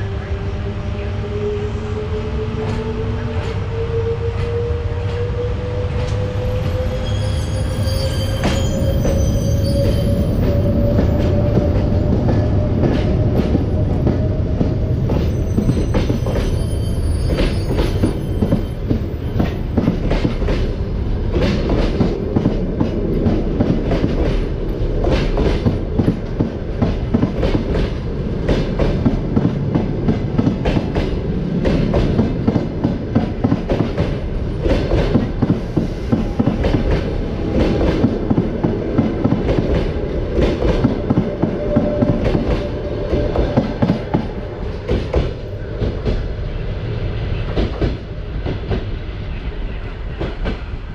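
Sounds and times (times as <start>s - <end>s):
train rumbling: 0.0s - 50.9s
train wheels clacking on rails: 4.3s - 46.3s, 47.5s - 48.9s, 49.8s - 50.8s.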